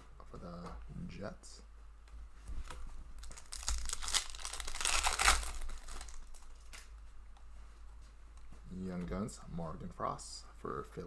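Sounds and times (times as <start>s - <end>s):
trading cards rustling: 2.6s - 6.9s.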